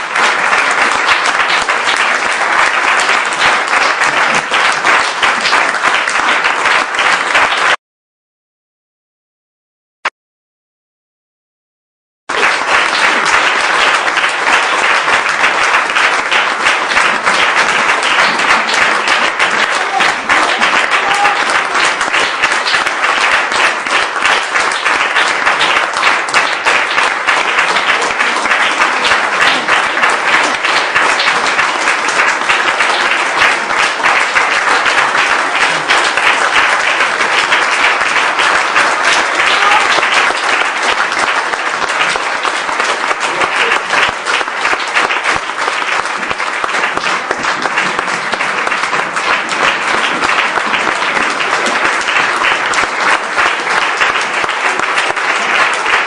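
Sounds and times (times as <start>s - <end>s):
audience applauding: 0.0s - 7.8s, 12.3s - 56.0s.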